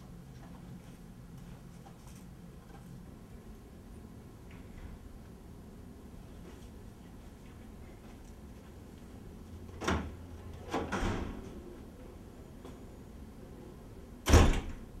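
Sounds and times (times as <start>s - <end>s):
door rattling clunk: 9.8s - 11.5s
door thud: 10.8s - 11.5s, 14.3s - 14.8s.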